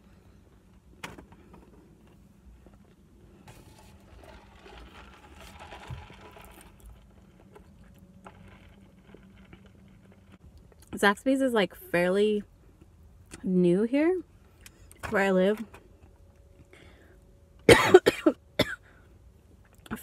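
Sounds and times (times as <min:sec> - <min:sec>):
muffled cough: 0:17.7 - 0:18.8.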